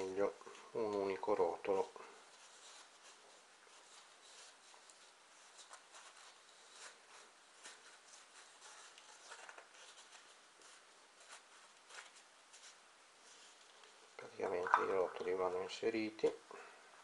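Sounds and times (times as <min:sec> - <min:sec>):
cardboard rustling and scratching: 0:02.2 - 0:15.0.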